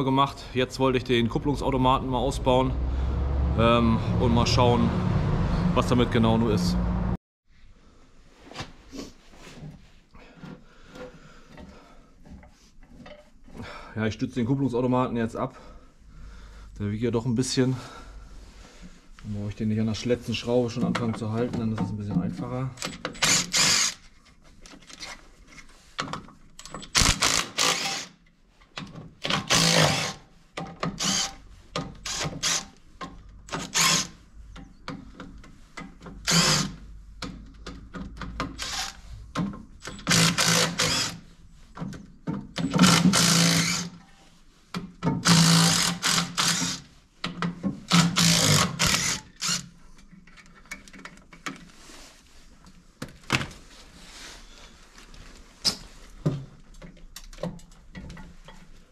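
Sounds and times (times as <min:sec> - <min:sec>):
impact wrench bursts: 0:22.8 - 0:24.0, 0:26.8 - 0:28.2, 0:29.2 - 0:30.2, 0:30.9 - 0:31.4, 0:32.0 - 0:32.8, 0:33.5 - 0:34.2, 0:36.2 - 0:36.8, 0:38.5 - 0:39.1, 0:39.8 - 0:41.2, 0:42.6 - 0:44.0, 0:45.2 - 0:46.9, 0:47.9 - 0:49.7.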